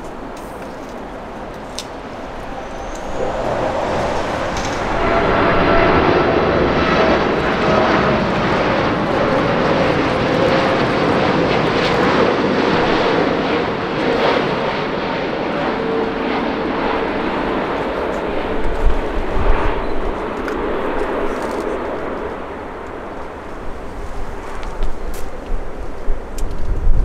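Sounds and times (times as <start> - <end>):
faint engine whine: 0.0 - 13.8
jet engines roaring past: 0.0 - 27.0.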